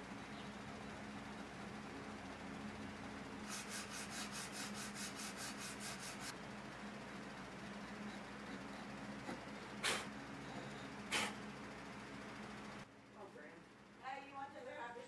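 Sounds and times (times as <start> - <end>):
faint steady hum: 0.0 - 15.0
rubbing strokes on wood: 3.4 - 6.3.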